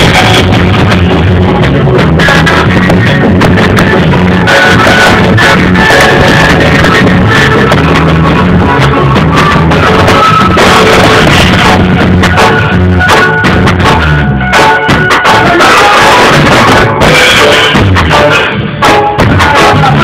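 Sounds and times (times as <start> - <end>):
bass: 0.0 - 20.0
drum kit beat: 0.0 - 20.0
electronic keyboard: 0.0 - 20.0.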